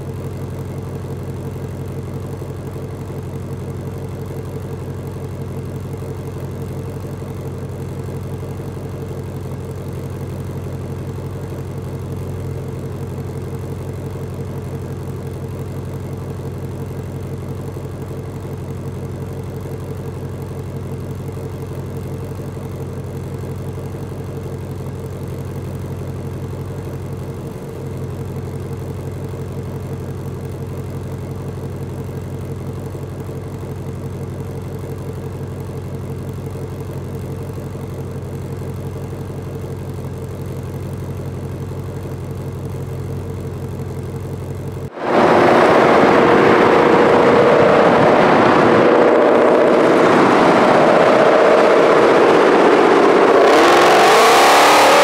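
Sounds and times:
car engine idling: 0.0 - 55.0
car driving fast at high revs: 44.9 - 55.0.

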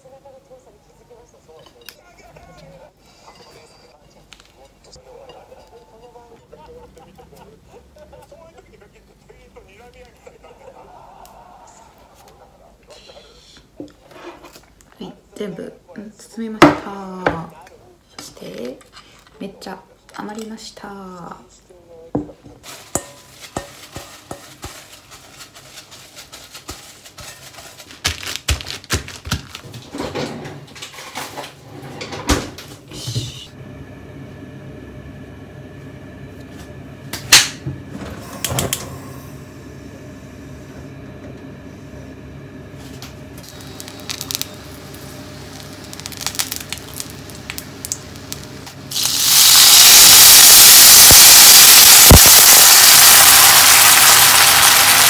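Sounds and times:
loud sizzling in hot pan: 22.6 - 25.4, 43.4 - 55.0.

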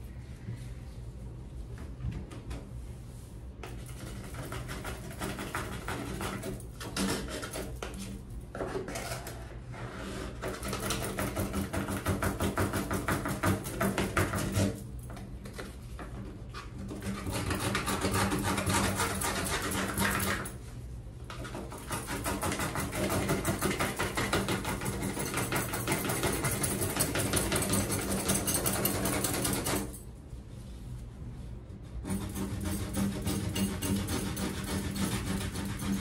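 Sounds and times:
hand scrubbing enamel and tile: 16.6 - 20.6, 31.8 - 36.0.

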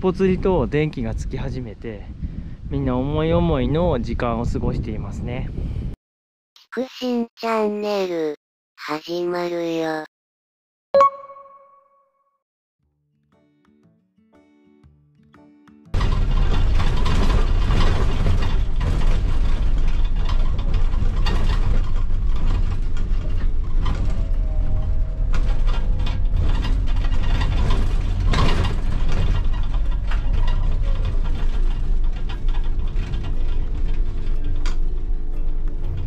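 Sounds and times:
cabin fittings rattling and clicking: 16.0 - 24.0, 25.4 - 36.0
bus diesel engine rumbling: 16.0 - 36.0.

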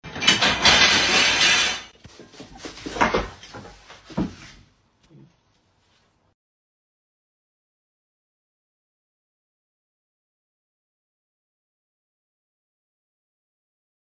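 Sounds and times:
slats rattling: 0.0 - 1.9
wooden slats crashing on floor: 0.0 - 1.9.

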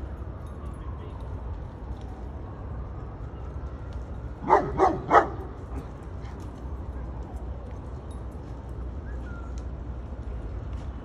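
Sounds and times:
dog barking: 4.4 - 5.5.

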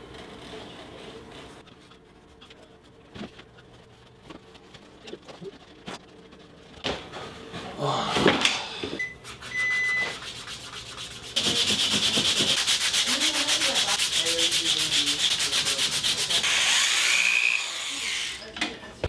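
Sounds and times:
leather being sanded: 9.3 - 17.0.

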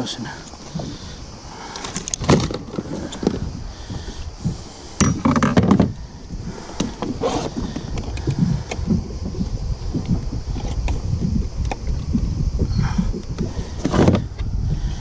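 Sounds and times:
low rumble: 5.9 - 15.0.

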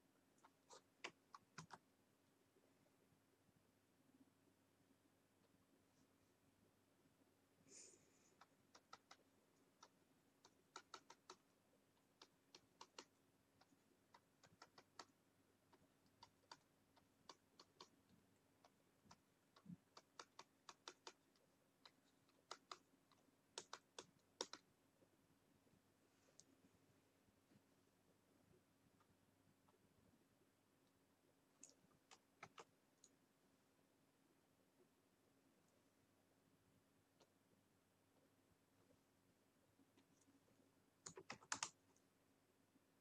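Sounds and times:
computer mouse clicks: 0.4 - 1.8, 8.4 - 18.0, 18.6 - 24.7, 31.6 - 33.2, 41.0 - 41.8.

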